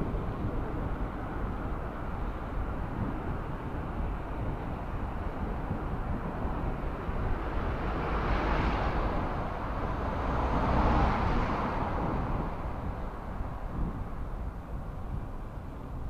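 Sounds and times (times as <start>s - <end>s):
steady low rumble: 0.0s - 16.0s
vehicles passing with rushing noise: 0.0s - 16.0s.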